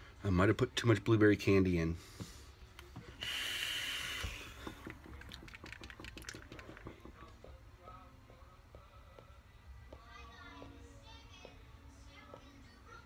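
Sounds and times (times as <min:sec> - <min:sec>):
vape hissing: 0:03.2 - 0:06.0.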